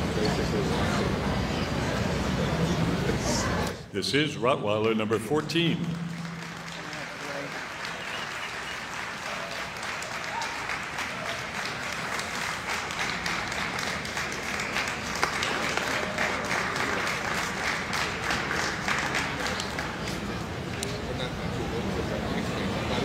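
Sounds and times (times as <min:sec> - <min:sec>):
crowd applauding: 0:05.8 - 0:20.8.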